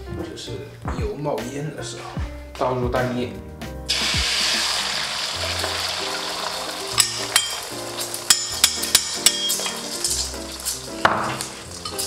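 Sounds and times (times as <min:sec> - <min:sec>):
background music: 0:00.0 - 0:12.0
egg sizzling in hot oil: 0:03.9 - 0:12.0
spoon clinking on bowl and wok: 0:06.9 - 0:12.0.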